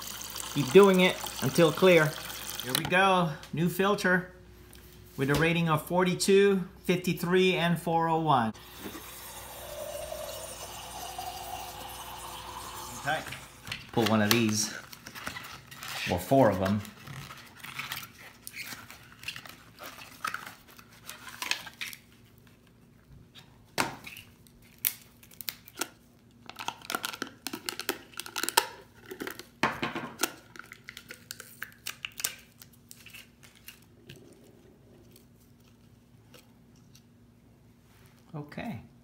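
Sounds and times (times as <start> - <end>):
cardboard packaging crinkling: 14.0 - 22.5.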